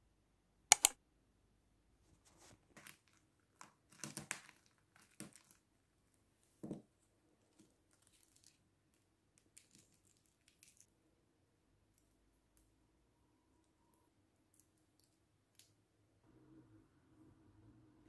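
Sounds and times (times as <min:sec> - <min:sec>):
eggshell cracking and peeling: 0:03.9 - 0:05.6.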